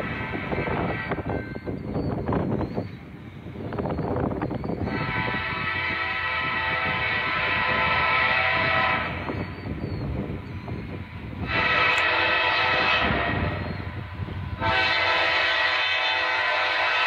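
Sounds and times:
locomotive air horn blasts: 0.0s - 1.4s, 4.8s - 9.5s, 11.4s - 17.0s
low train rumble: 0.0s - 17.0s.

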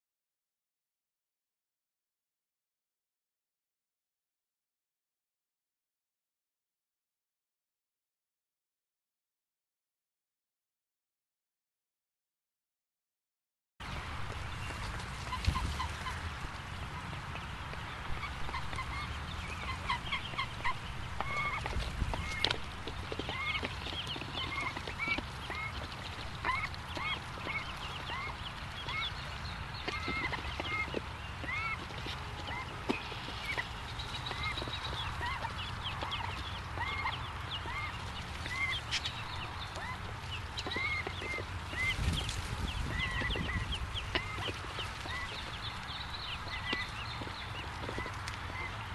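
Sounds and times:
ducklings peeping: 13.9s - 48.9s.

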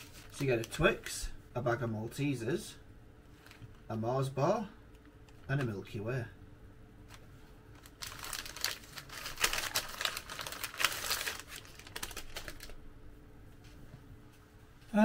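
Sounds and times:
crinkling packaging: 0.0s - 1.1s, 3.3s - 3.9s, 4.9s - 6.0s, 7.0s - 12.8s.

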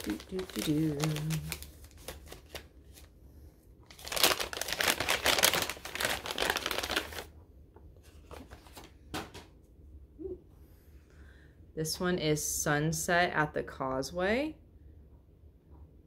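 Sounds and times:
wrapping crinkling: 0.0s - 3.1s, 3.9s - 7.3s.

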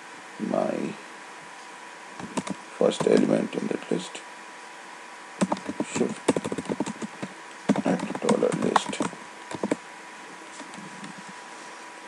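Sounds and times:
keyboard typing: 2.2s - 3.3s, 5.4s - 9.8s.

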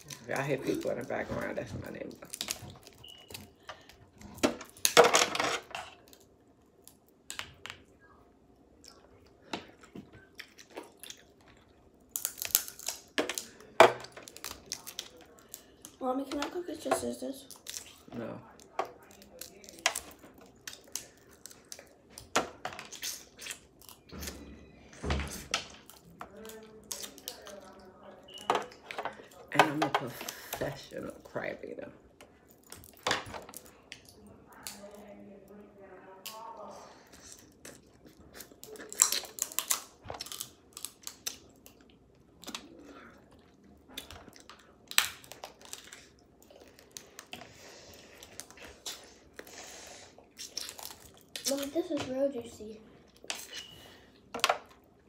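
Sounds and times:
chewing: 8.6s - 16.0s, 37.0s - 51.8s
crab shells cracking in teeth: 12.0s - 13.6s, 37.6s - 42.8s, 44.0s - 47.3s
crab shell cracking: 12.1s - 15.8s, 44.0s - 47.3s.

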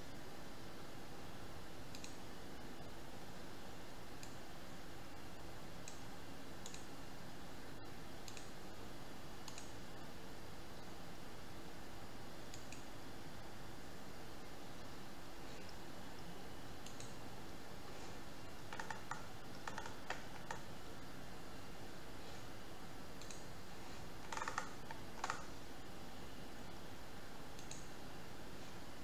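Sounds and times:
computer mouse and keyboard clicks: 1.9s - 2.2s, 5.8s - 6.9s, 8.2s - 8.6s, 9.4s - 9.8s, 16.8s - 17.2s, 18.5s - 20.7s, 23.2s - 25.6s, 27.6s - 27.9s.

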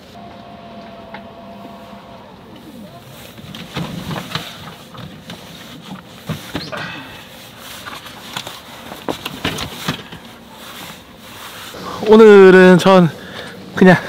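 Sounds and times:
crates knocking and rustling: 2.5s - 12.2s.

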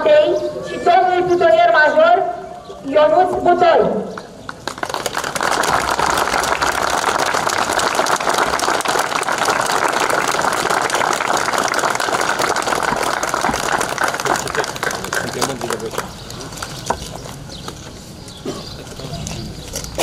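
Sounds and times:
crowd applauding: 4.4s - 16.7s.

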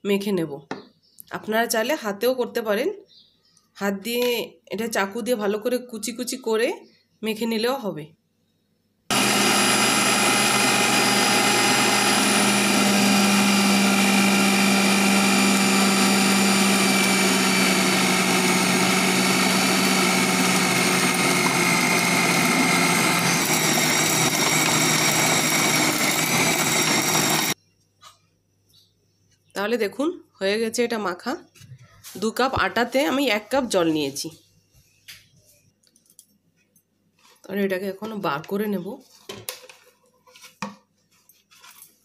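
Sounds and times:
food processor motor running: 9.1s - 27.6s.

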